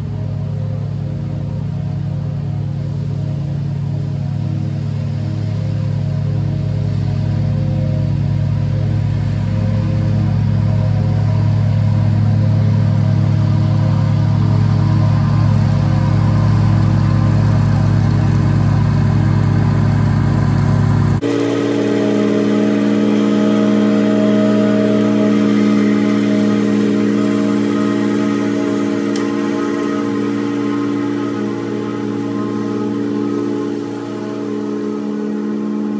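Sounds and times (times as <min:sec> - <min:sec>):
riding mower engine running: 0:00.0 - 0:35.9.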